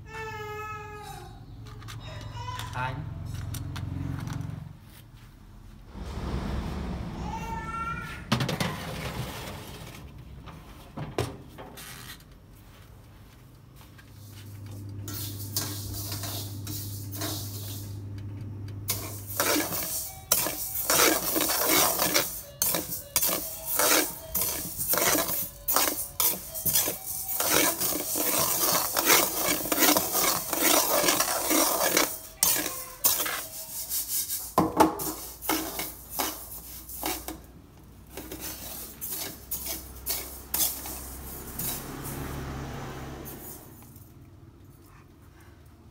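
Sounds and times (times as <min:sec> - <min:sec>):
metal spatula scraping rice in wok: 0:14.2 - 0:18.0, 0:18.9 - 0:37.4, 0:38.1 - 0:42.2.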